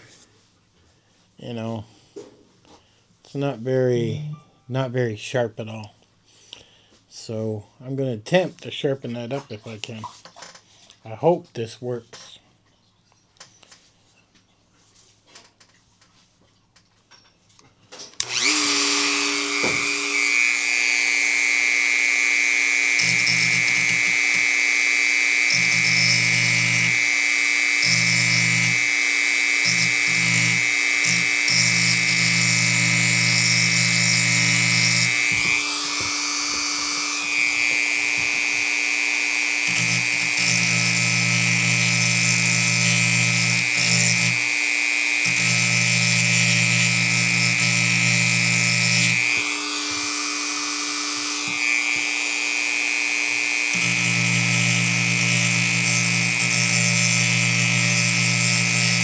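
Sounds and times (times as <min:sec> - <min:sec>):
grinding stone on steel blade: 0:18.2 - 0:59.0
rotary tool high whine: 0:18.2 - 0:59.0.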